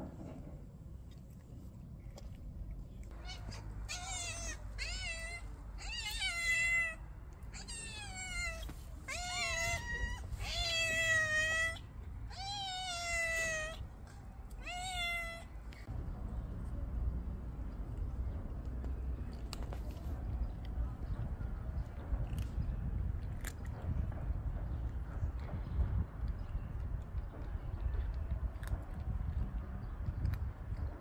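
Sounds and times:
cat meowing: 0:03.1 - 0:13.9, 0:14.5 - 0:15.6.

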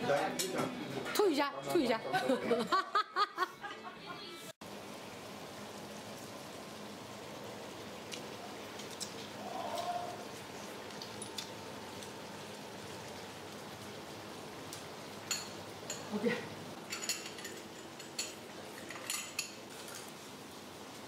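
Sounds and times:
meat sizzling in a wok: 0:04.6 - 0:21.0
chopsticks and bowls clinking: 0:15.2 - 0:16.2, 0:16.8 - 0:20.0.

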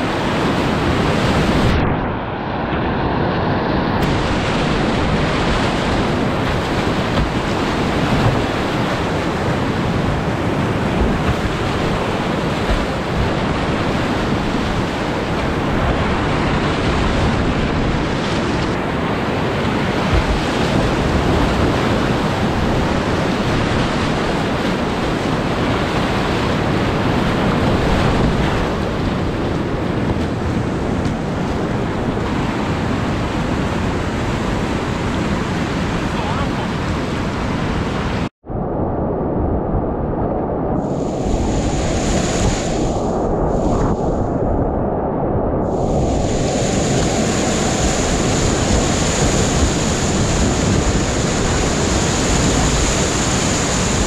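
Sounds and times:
whitewater rapids rushing: 0:04.0 - 0:38.2, 0:46.0 - 0:54.0.

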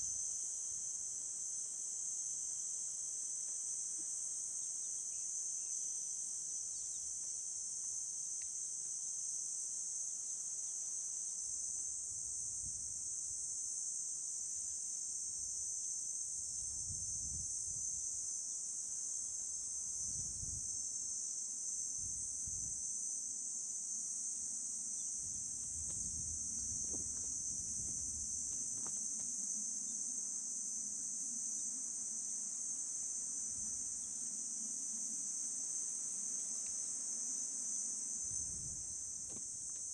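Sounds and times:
insects droning: 0:00.0 - 0:39.9.

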